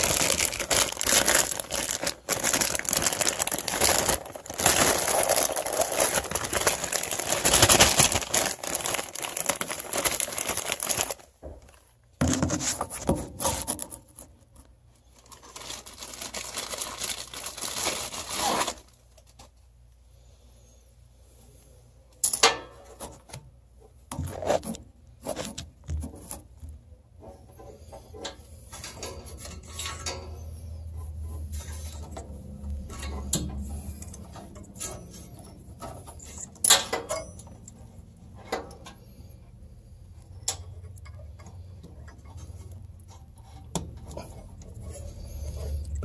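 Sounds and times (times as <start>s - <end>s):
clicks and knocks of handling parts: 22.1s - 30.6s, 31.5s - 39.2s.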